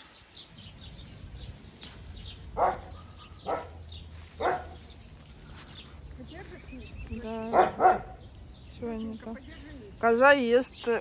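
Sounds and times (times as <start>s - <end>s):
dog barking: 2.6s - 3.8s, 4.4s - 4.8s, 7.5s - 8.2s.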